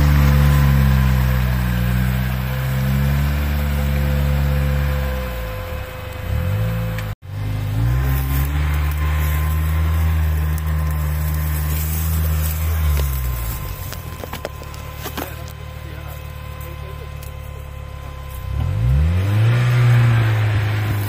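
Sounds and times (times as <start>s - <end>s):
off-road vehicle engine revving: 0.0s - 21.0s.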